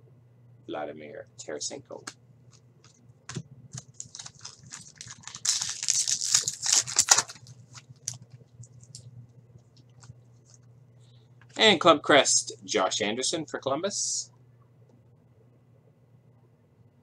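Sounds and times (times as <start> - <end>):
cards rustling: 2.8 - 9.0.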